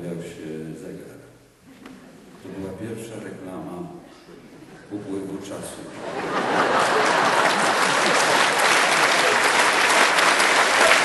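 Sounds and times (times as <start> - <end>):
audience applause: 6.1 - 11.0.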